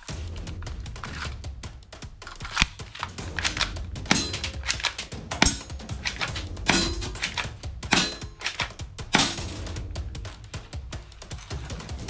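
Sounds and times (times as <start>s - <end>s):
plastic toy pistol clicking: 2.2s - 9.4s.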